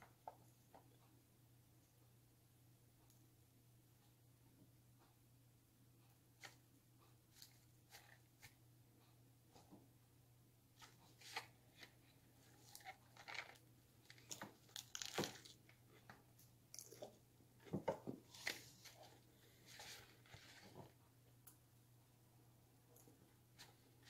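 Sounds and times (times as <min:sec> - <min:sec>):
packaging crinkling and tearing: 0:12.6 - 0:15.7.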